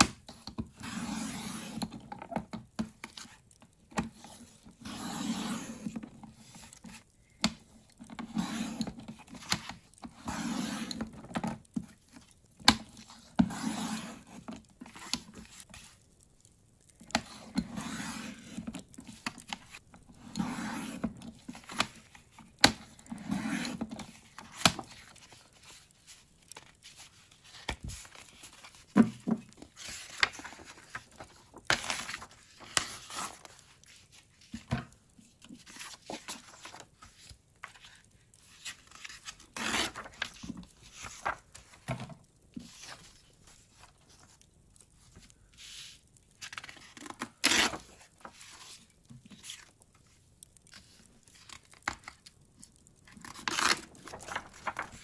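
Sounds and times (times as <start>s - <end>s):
paper rustling: 17.1s - 55.0s.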